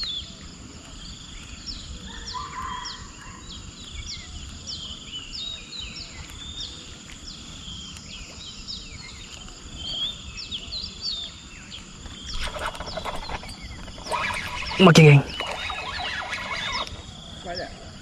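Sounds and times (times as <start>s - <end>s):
high insect whine: 0.0s - 18.0s
chirping calls: 12.1s - 17.8s.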